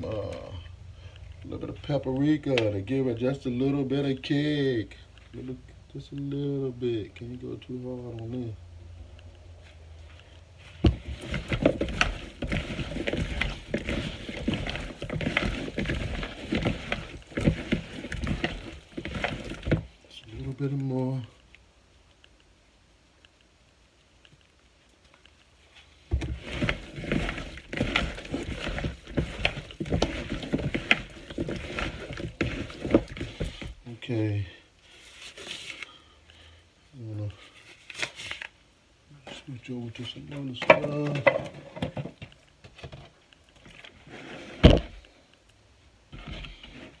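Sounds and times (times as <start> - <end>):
rustling and clatter: 9.6 - 20.6, 25.1 - 33.9
hands mixing chicken in bowl: 9.6 - 21.3, 25.8 - 34.1.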